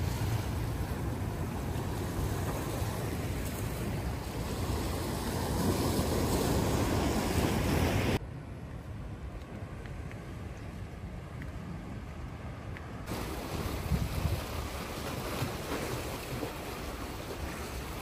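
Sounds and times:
waves washing on shore: 0:00.0 - 0:08.2, 0:13.0 - 0:18.0
wind buffeting microphone: 0:09.7 - 0:18.0.

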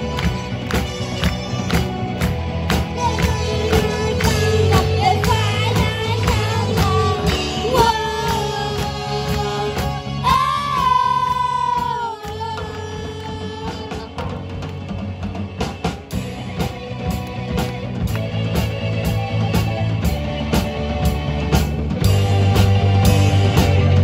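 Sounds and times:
rock band playing: 0:00.0 - 0:24.0
steady drum beat: 0:00.0 - 0:24.0
girls singing into microphones: 0:02.8 - 0:13.8.

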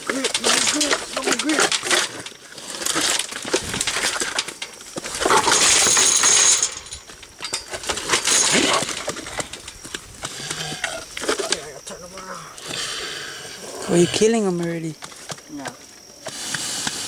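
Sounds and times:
wire mesh cage rattling: 0:00.0 - 0:10.4.

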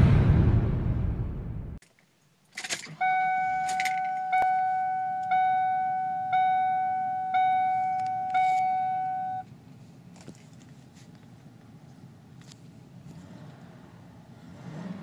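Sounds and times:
seatbelt warning chime: 0:02.9 - 0:09.5.

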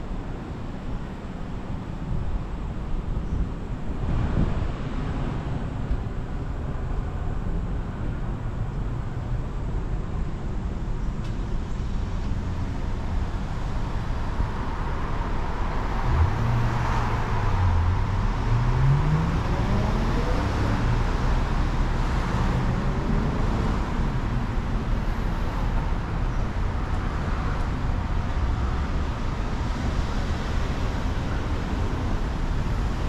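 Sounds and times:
street traffic rumbling: 0:00.0 - 0:33.0
vehicle accelerating: 0:13.9 - 0:33.0.

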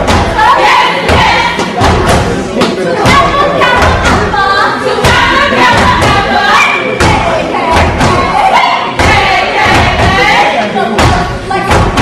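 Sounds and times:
heavy stomps on wooden stage: 0:00.0 - 0:00.5, 0:01.1 - 0:02.4, 0:03.1 - 0:04.3, 0:05.0 - 0:06.3, 0:09.0 - 0:10.3, 0:11.0 - 0:12.0
women chanting in unison: 0:00.0 - 0:01.6, 0:03.0 - 0:12.0
crowd: 0:00.0 - 0:12.0.

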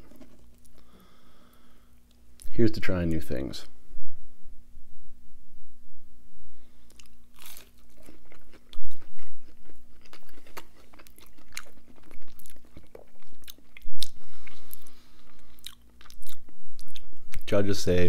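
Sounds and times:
person chewing crunchy food: 0:00.0 - 0:01.0, 0:06.8 - 0:17.5.

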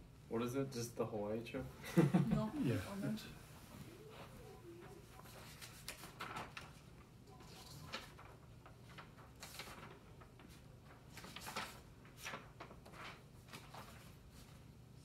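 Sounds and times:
low room hum: 0:00.0 - 0:15.0
paper sheets rustling: 0:04.1 - 0:15.0.

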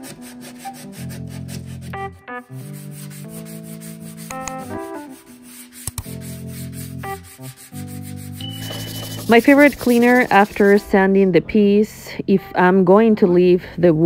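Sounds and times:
sandpaper rasping on wood: 0:00.0 - 0:10.9
background music with held chords: 0:00.0 - 0:14.0.

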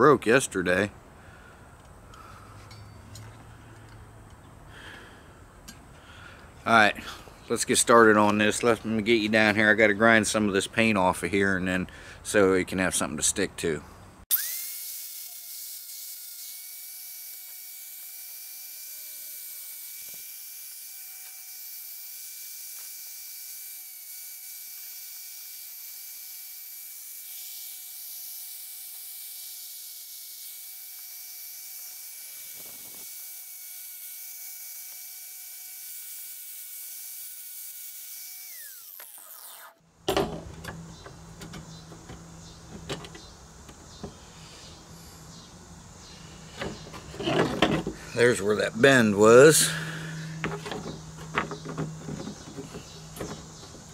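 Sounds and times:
angle grinder whining: 0:14.3 - 0:39.8, 0:46.4 - 0:53.9.

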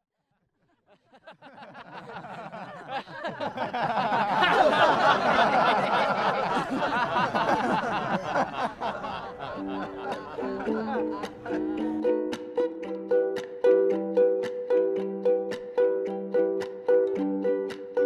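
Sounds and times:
group of people laughing: 0:00.7 - 0:12.0.

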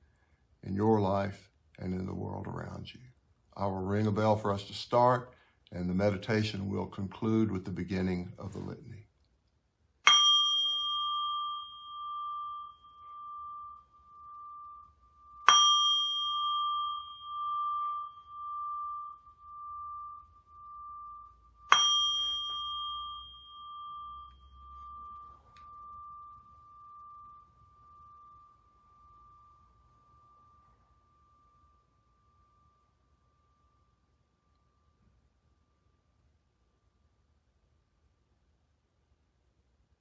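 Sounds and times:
meditation bell ringing: 0:10.0 - 0:37.1.

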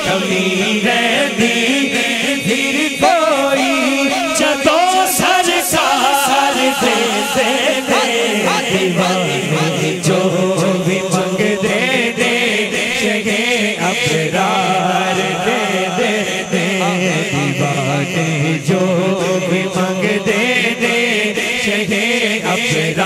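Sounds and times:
men chanting devotional song: 0:00.0 - 0:23.0.

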